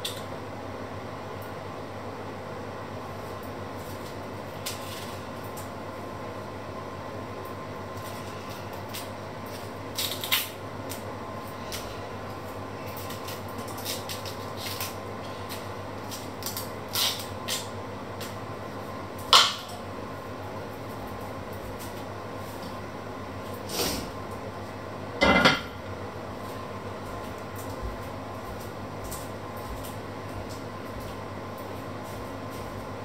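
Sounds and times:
background hum: 0.0s - 33.0s
onion skin crackling and scraping: 4.0s - 5.3s, 8.0s - 11.0s, 12.8s - 17.7s.

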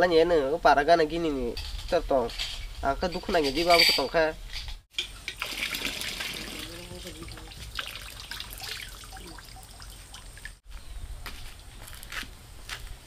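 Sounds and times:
water trickling and splashing: 4.9s - 10.6s.

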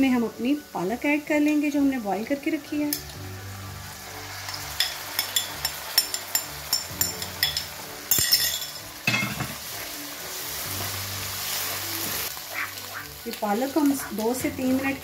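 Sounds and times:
oil sizzling: 0.0s - 15.0s
spoon scraping and clinking: 4.5s - 9.5s.

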